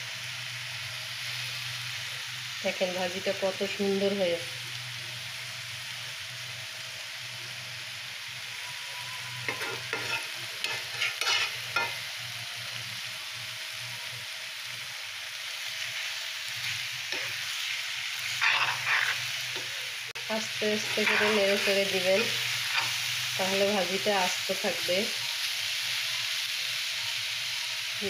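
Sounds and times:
food sizzling in pan: 0.0 - 28.0
metal spoon scraping pan: 9.4 - 12.0, 16.7 - 19.8, 20.5 - 23.1.

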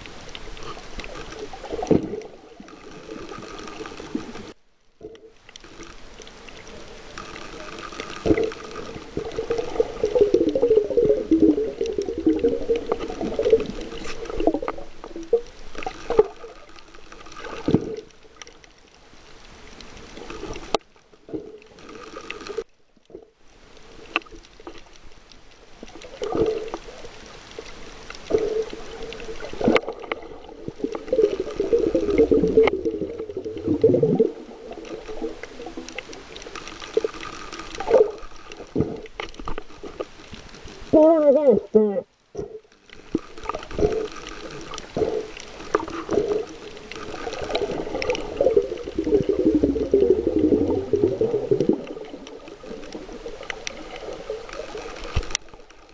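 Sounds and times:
underwater gurgling and sloshing: 0.0 - 55.9.

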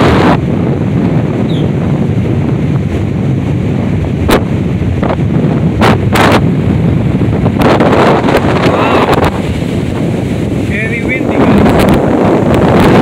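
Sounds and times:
wind buffeting microphone: 0.0 - 13.0
sharp pops of gusts on mic: 4.2 - 6.6.

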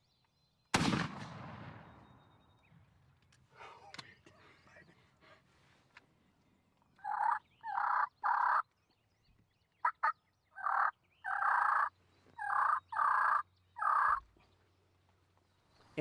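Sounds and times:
wild turkey gobbling: 7.0 - 8.6, 9.8 - 14.3.

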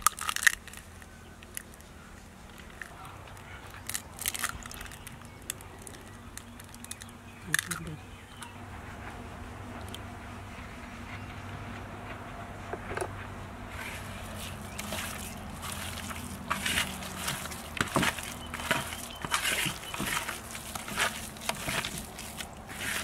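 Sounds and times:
hand squishing wet paste in bowl: 13.8 - 23.0.

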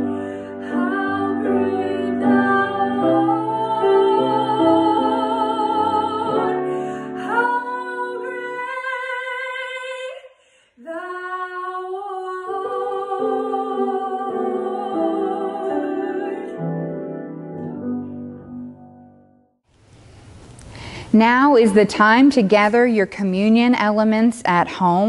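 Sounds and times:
woman singing with vibrato: 0.0 - 16.6.

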